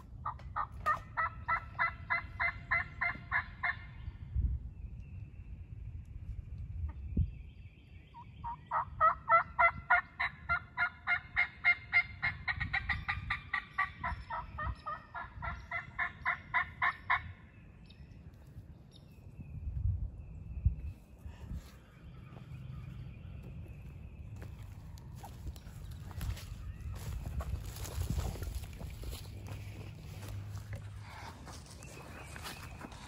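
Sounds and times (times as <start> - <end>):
turkey call yelps: 0.2 - 3.9, 8.4 - 17.2.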